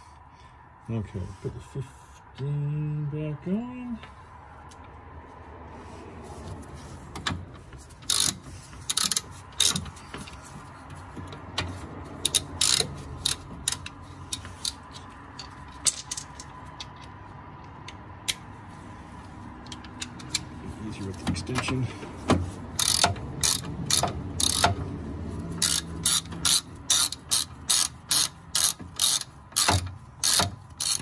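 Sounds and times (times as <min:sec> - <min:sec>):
socket ratchet clicking: 0:08.0 - 0:09.9, 0:12.2 - 0:15.4, 0:22.8 - 0:24.8, 0:25.6 - 0:31.0
metal tools clinking: 0:12.3 - 0:17.2.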